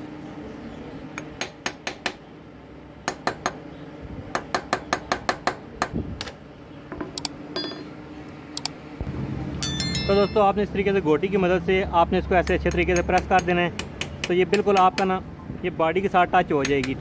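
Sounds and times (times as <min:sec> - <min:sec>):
hammer tapping on metal socket: 0:12.4 - 0:15.1, 0:16.6 - 0:17.0.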